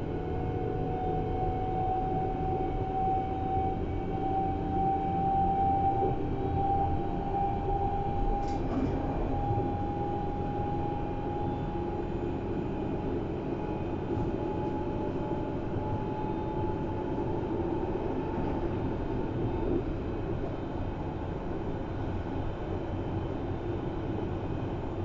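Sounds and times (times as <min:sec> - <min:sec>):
train wheels rumbling on track: 0:06.0 - 0:25.0.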